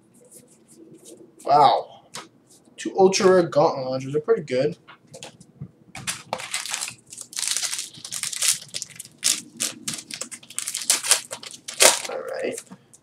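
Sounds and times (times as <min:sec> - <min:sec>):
foil wrapper crinkling: 0:06.0 - 0:12.7
foil pack tearing: 0:06.1 - 0:12.6.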